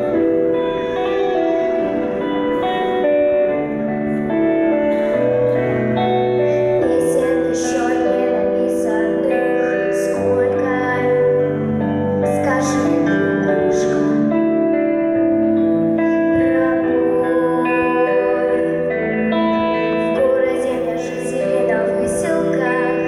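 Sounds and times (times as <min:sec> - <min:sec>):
instrumental backing track: 0:00.0 - 0:23.0
girl singing solo: 0:06.3 - 0:14.1.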